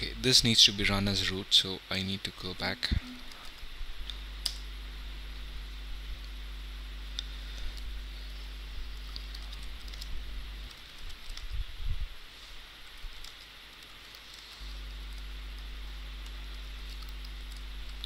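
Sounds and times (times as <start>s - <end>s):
steady low hum: 0.0s - 18.0s
keyboard keys clicking: 9.0s - 11.6s.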